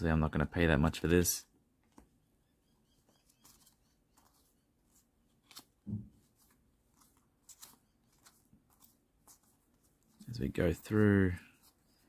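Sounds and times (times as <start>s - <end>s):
trading cards rustling and clicking: 2.9s - 12.0s.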